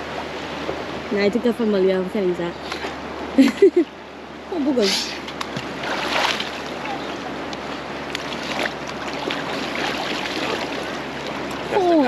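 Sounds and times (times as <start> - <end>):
small waves washing: 0.0 - 12.0
water splashing around wading person: 4.8 - 12.0.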